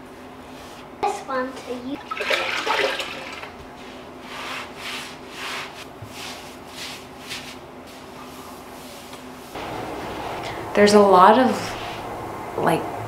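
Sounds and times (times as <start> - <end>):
sponge scrubbing tiles: 2.0 - 10.4.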